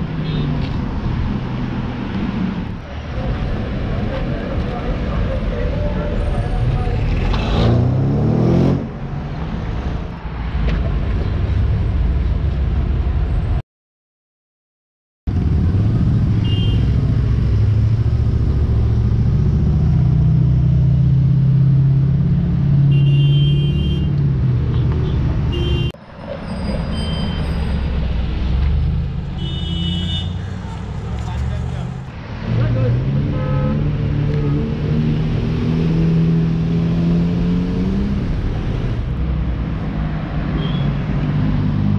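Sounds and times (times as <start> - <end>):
cars driving past: 0.0 - 13.5, 15.3 - 41.9
road noise: 0.0 - 13.6, 15.3 - 41.9.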